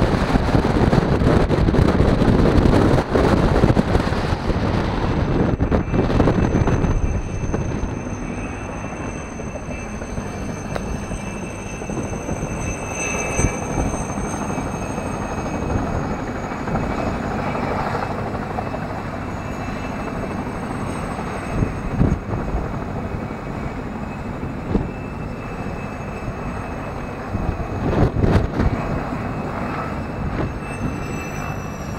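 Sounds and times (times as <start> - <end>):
engine drone with whine: 0.0 - 31.9.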